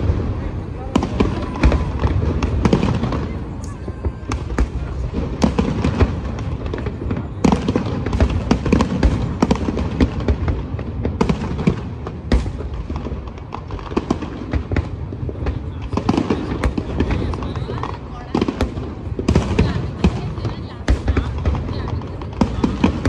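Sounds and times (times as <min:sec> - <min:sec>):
fireworks bursting: 0:00.0 - 0:23.0.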